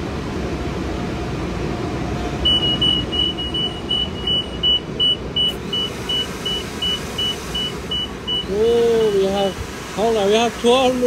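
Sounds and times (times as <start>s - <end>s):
steady low rumble: 0.0s - 8.9s
short high beeps: 2.4s - 9.2s.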